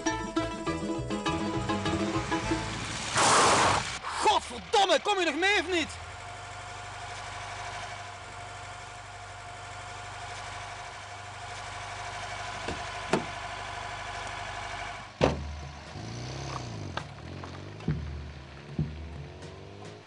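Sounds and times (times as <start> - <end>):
car engine running: 0.5 - 20.0
sharp knocks: 15.2 - 16.0, 17.8 - 20.0.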